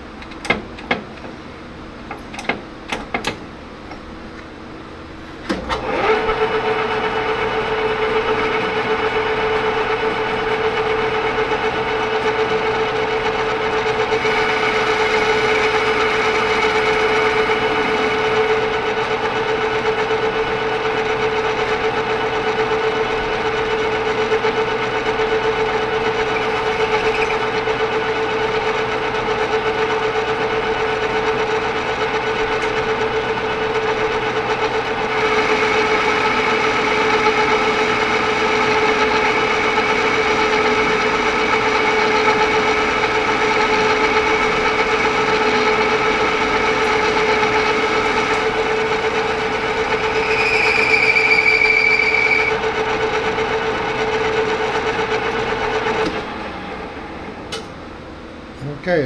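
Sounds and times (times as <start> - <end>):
metal lathe whining: 5.5 - 57.5
cutting tool squealing: 26.2 - 27.6, 49.7 - 52.6.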